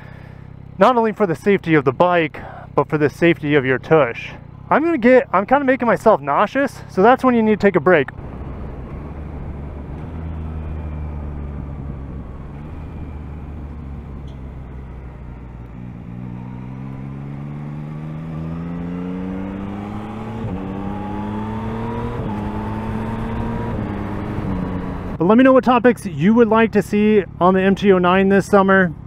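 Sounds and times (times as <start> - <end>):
gear upshifts: 0.0 - 29.0
motorcycle engine accelerating: 0.0 - 29.0
wind rush: 8.2 - 14.6.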